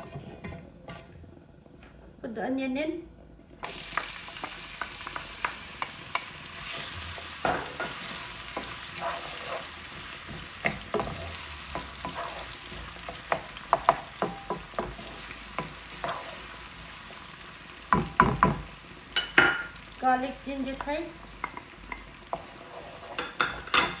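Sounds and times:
spatula knocking and scraping pan: 0.0s - 1.2s, 3.9s - 17.3s, 17.9s - 19.7s, 20.7s - 24.0s
onion sizzling in oil: 0.0s - 24.0s.

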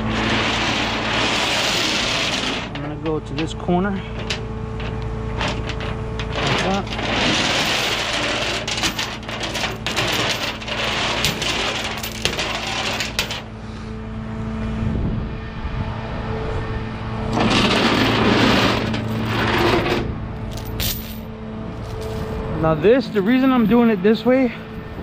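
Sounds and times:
rushing scraping noise: 0.0s - 13.5s, 17.2s - 20.2s
steady low hum: 0.0s - 25.0s
chain links clinking on steel: 5.4s - 13.4s, 20.5s - 22.4s.

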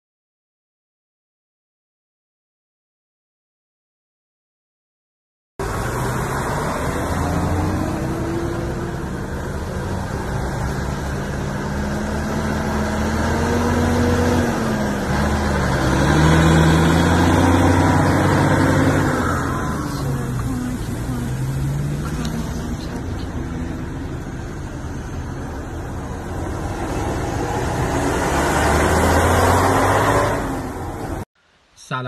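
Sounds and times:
engine humming: 5.6s - 31.2s
engine revving: 5.6s - 31.2s.

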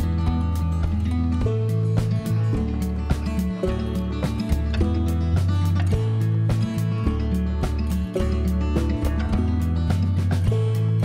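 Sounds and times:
held bass line: 0.0s - 11.0s.

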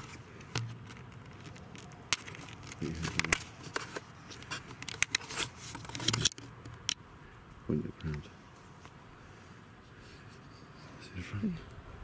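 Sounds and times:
camera handling noise: 0.0s - 7.0s.

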